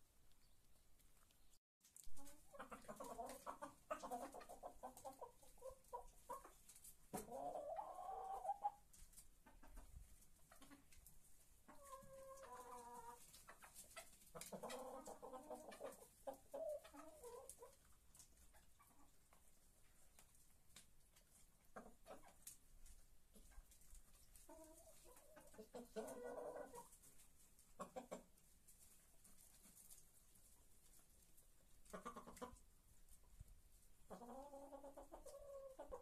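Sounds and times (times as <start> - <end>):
chickens clucking: 2.1 - 36.0.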